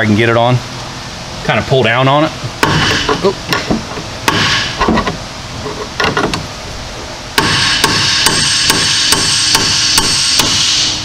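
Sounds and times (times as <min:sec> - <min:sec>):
loud steady hiss: 0:00.0 - 0:11.0
hammer striking metal: 0:02.6 - 0:05.1, 0:07.4 - 0:10.9.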